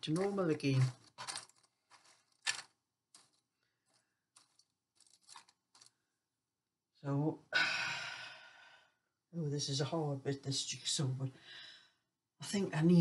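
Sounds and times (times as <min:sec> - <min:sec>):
jigsaw pieces clicking on table: 0:00.0 - 0:05.9.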